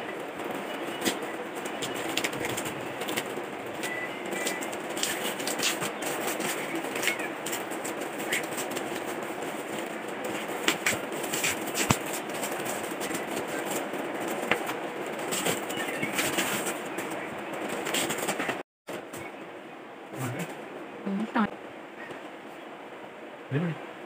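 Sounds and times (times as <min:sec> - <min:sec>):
paper and tape crinkling: 0:00.1 - 0:18.6.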